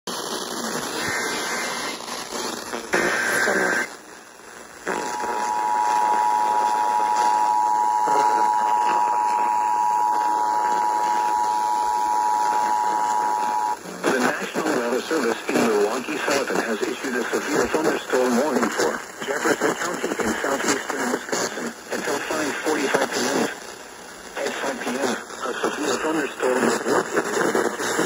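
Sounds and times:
buzzy data bursts: 0:00.1 - 0:15.0
radio static hiss: 0:00.1 - 0:28.0
two-tone attention signal: 0:05.2 - 0:13.8.

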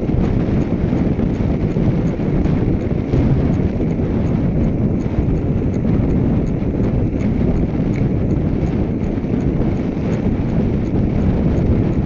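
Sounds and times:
bicycle tyre rumble: 0:00.0 - 0:12.0
light repeating tick: 0:00.0 - 0:12.0
wind buffeting microphone: 0:00.0 - 0:12.0.

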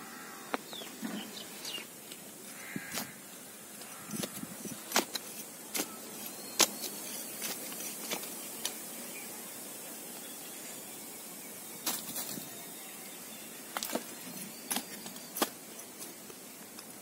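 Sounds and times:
digging tool chopping stony soil: 0:04.1 - 0:08.8, 0:13.8 - 0:15.6.

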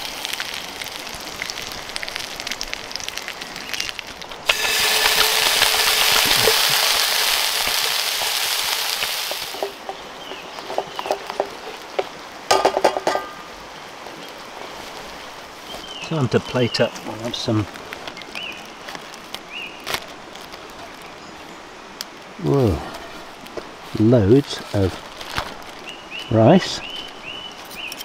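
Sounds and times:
food sizzling in frying pan: 0:00.0 - 0:13.5
light crackling and bubbling: 0:00.0 - 0:28.0.

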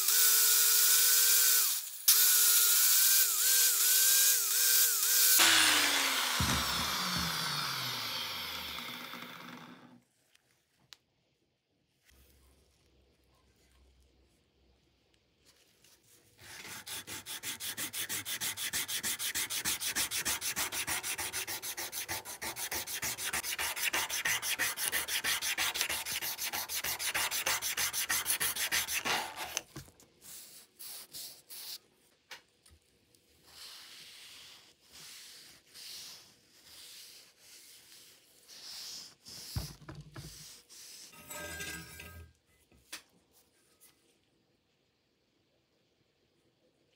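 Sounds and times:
sanding rubbing strokes: 0:16.4 - 0:29.6.

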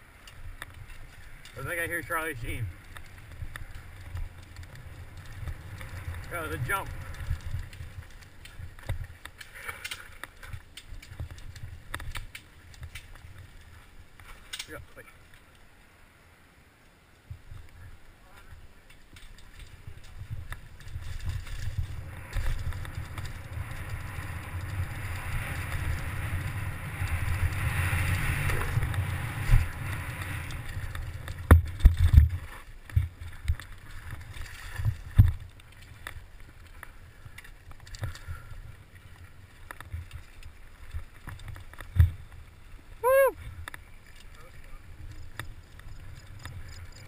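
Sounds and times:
wind rushing over helmet camera: 0:00.0 - 0:09.4, 0:19.4 - 0:44.0
tyres rumbling over dirt: 0:00.0 - 0:14.8, 0:18.5 - 0:47.0
bike knocking over bumps: 0:19.0 - 0:36.1.

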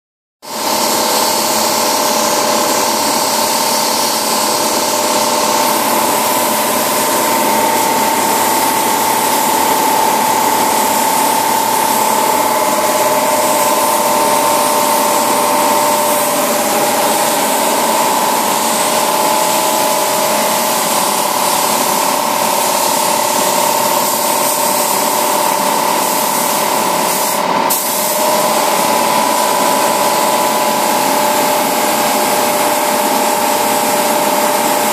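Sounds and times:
paint spray gun hissing: 0:00.5 - 0:34.9
steady whine: 0:01.6 - 0:25.9.

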